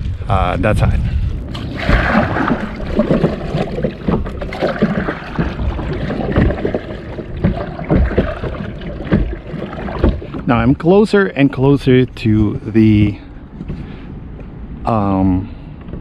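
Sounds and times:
wind rumbling on microphone: 0.0s - 10.8s
water slapping plastic hull: 1.4s - 10.8s
paddle splashing in water: 1.5s - 10.6s.

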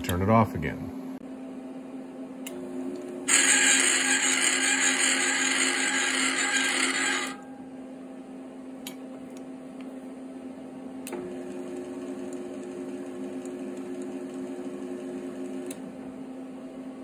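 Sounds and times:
lathe humming: 3.3s - 7.4s, 11.2s - 15.8s.

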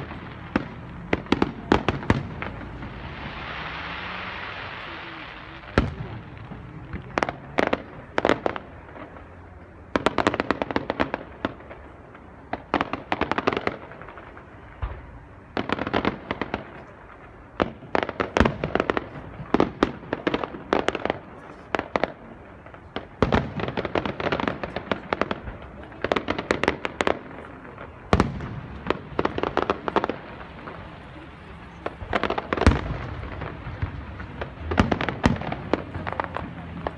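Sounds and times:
deep firework booms: 0.0s - 9.1s, 17.5s - 36.9s
firework bangs and crackling: 0.0s - 36.9s.

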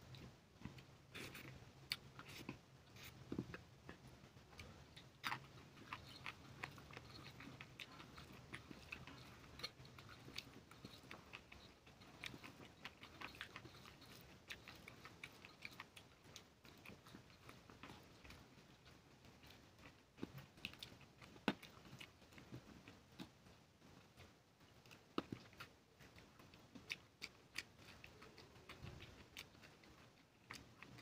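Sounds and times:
fingers mixing food on metal plate: 0.0s - 23.5s
chewing and biting: 0.0s - 31.0s
low steady hum: 0.0s - 31.0s.

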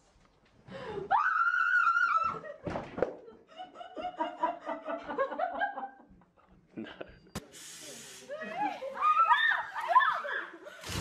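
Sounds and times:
laughter: 2.2s - 7.3s, 8.3s - 9.2s.

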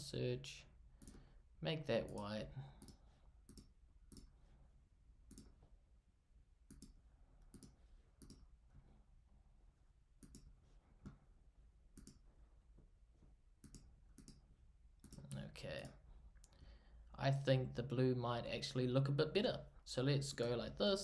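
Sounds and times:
faint computer mouse clicks: 1.0s - 1.2s, 2.0s - 4.3s, 5.3s - 5.6s, 6.7s - 8.5s, 10.2s - 11.2s, 12.0s - 12.2s, 13.6s - 14.4s.

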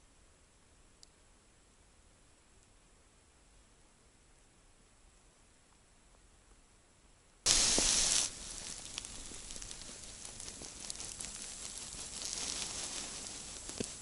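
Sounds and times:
jacket rustling on microphone: 7.5s - 14.0s.

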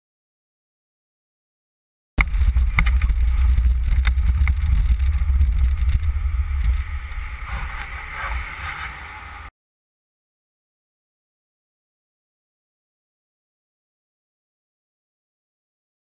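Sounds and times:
street noise: 2.2s - 9.5s
velomobile rolling rumble: 2.2s - 9.5s.

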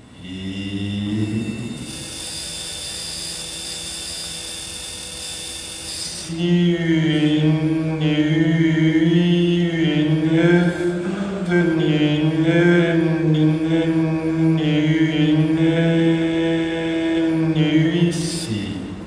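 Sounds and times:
chant-like vocal drone: 0.0s - 4.4s, 5.8s - 19.0s
breathy hissing: 0.1s - 8.9s.

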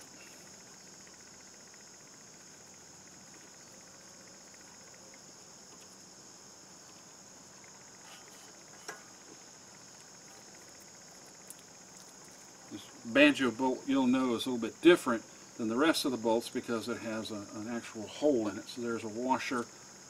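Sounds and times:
crickets chirring: 0.0s - 20.0s.

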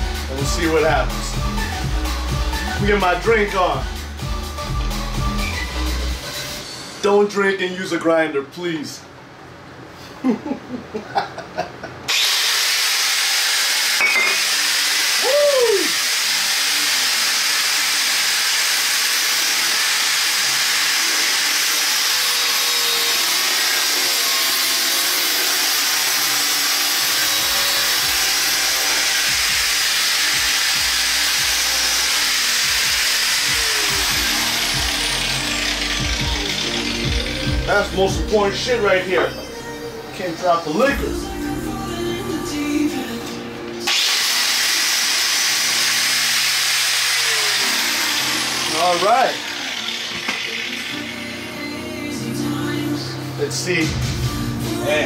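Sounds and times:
angle grinder cutting cardboard: 12.1s - 38.6s, 43.8s - 52.6s.

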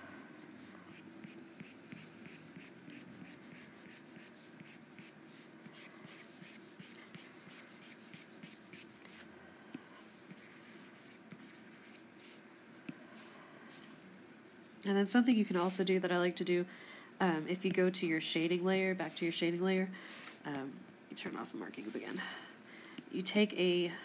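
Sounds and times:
stylus scratching on drawing tablet: 0.9s - 9.2s, 10.3s - 12.0s.

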